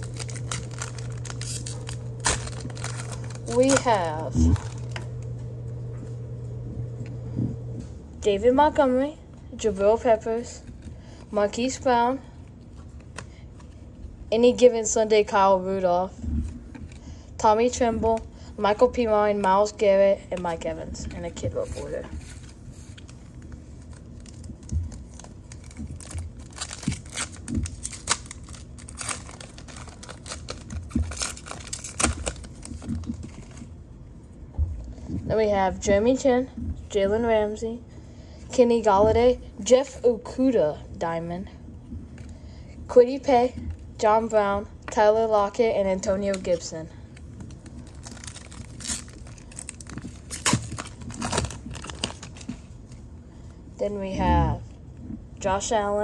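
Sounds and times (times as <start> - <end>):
foil wrappers crinkling: 0.0 - 5.4, 20.4 - 33.7, 46.2 - 53.0.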